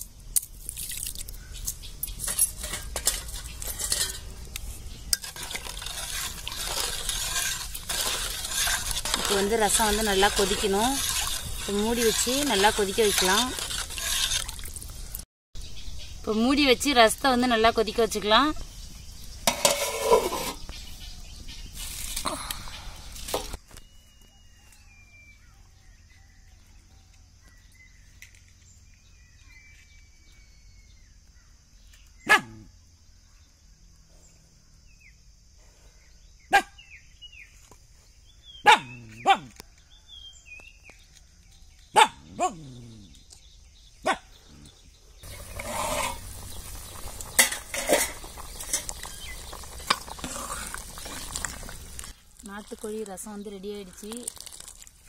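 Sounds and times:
pot boiling hard: 2.3s - 15.2s, 19.4s - 20.6s, 45.2s - 55.0s
bird chirps: 22.6s - 32.3s
dog barking: 32.3s - 32.7s, 36.5s - 36.8s, 38.6s - 39.5s, 41.9s - 42.6s, 44.0s - 44.3s.

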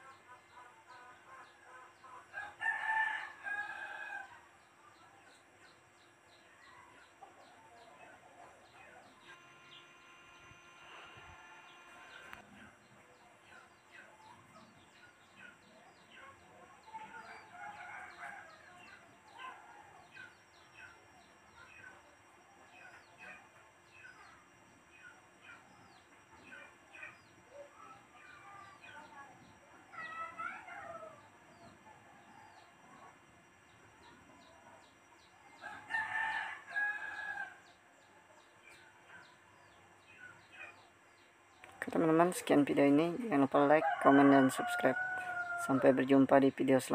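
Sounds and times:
birds chirping: 0.0s - 46.9s
rooster crowing: 2.3s - 4.4s, 35.6s - 37.7s, 43.7s - 46.2s.

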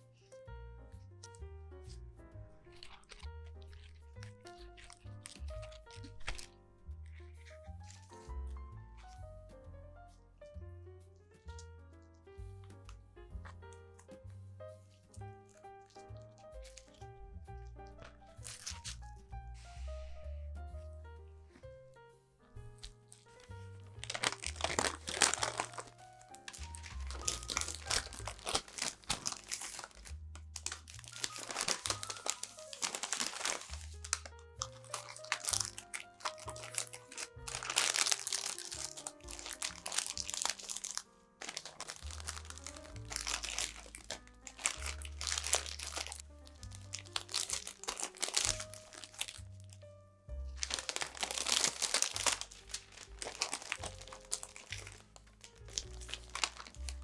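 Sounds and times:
background music: 0.0s - 57.0s
paper crinkling and rustling: 2.6s - 9.2s, 15.1s - 20.2s, 22.8s - 49.8s, 50.5s - 57.0s.

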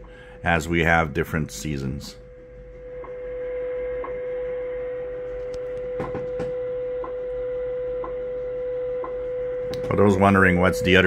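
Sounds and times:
time signal ticks: 2.7s - 11.0s
steady radio tone: 9.8s - 11.0s.

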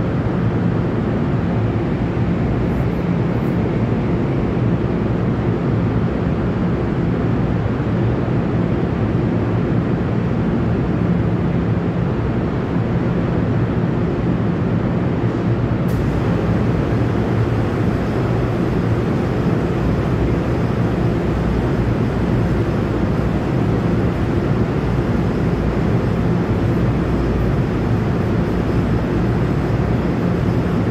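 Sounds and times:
faint hum: 10.0s - 30.9s
low rumbling drone: 15.9s - 30.9s.

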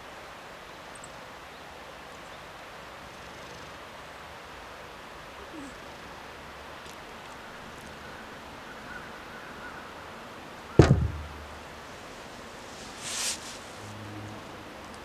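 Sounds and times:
short rustling hiss: 11.0s - 14.0s.

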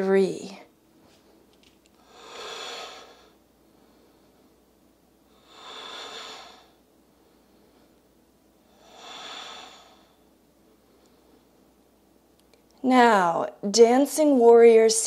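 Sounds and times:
woman breathing slowly: 1.1s - 11.8s.

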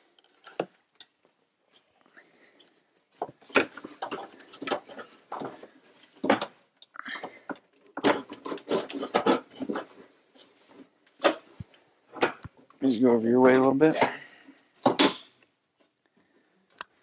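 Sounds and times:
hands and tools clattering: 3.2s - 12.7s.

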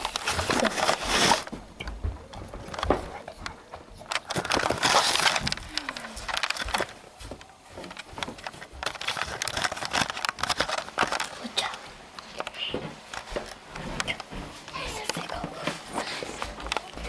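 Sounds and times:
camera handling rustling and knocks: 4.0s - 6.9s, 7.9s - 11.4s.

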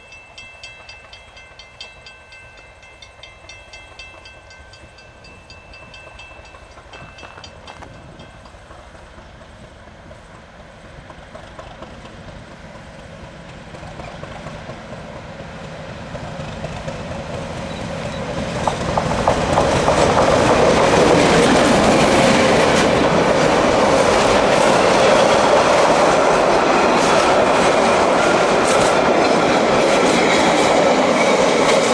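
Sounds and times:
diesel locomotive passing: 0.0s - 31.9s
carriage wheels rumbling on rails: 16.4s - 28.0s.

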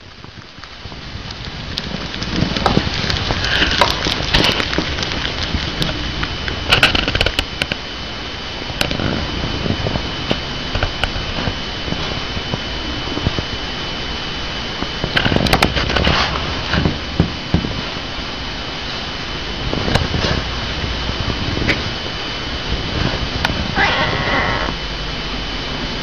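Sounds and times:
steady background hum: 0.0s - 26.0s
hamster munching crunchy vegetable: 2.0s - 7.4s, 23.0s - 24.8s.

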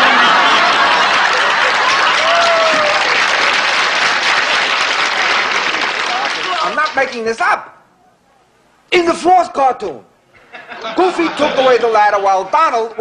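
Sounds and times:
studio audience applauding: 0.0s - 7.2s.

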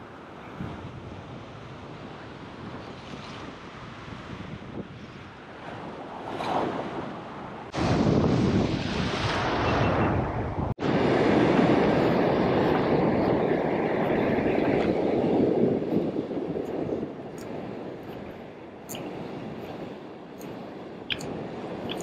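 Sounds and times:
wind buffeting microphone: 0.0s - 22.0s
surf washing over rocks: 10.8s - 22.0s.

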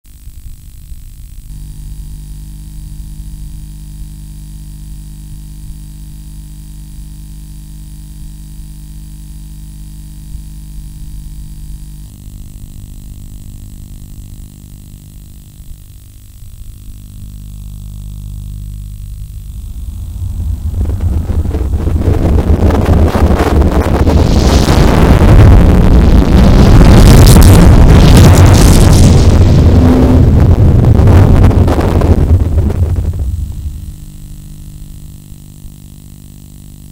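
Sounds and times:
electrical hum and hiss: 0.1s - 36.9s
rising rush of sound: 19.2s - 24.9s.

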